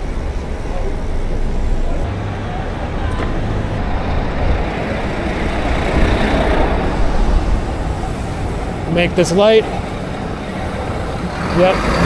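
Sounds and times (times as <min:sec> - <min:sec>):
city traffic passing: 0:00.0 - 0:12.0
wind noise on microphone: 0:02.9 - 0:12.0.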